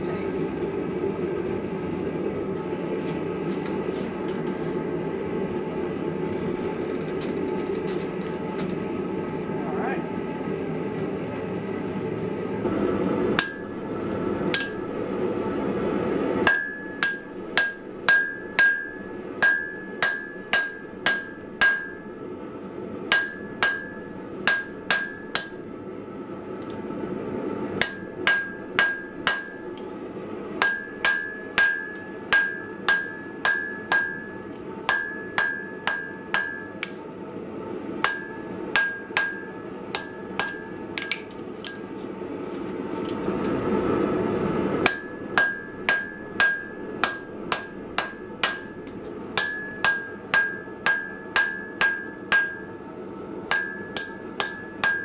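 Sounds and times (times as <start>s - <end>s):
hammer ringing on anvil: 16.4s - 22.1s, 23.1s - 25.5s, 27.8s - 29.6s, 30.6s - 37.0s, 38.0s - 41.8s, 44.8s - 48.8s, 49.4s - 52.8s, 53.5s - 55.0s.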